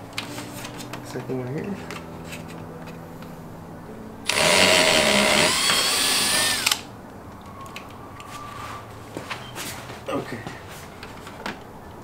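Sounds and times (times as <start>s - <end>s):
cordless drill boring: 4.3s - 6.8s.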